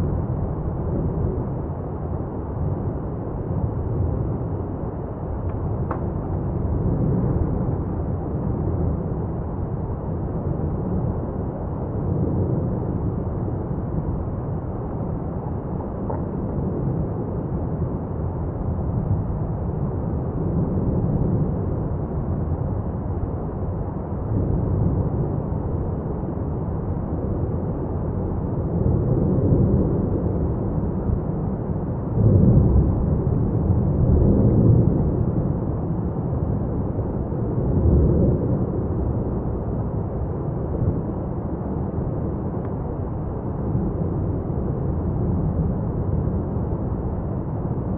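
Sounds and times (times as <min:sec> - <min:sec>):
lava fountain deep roar: 0:00.0 - 0:47.9.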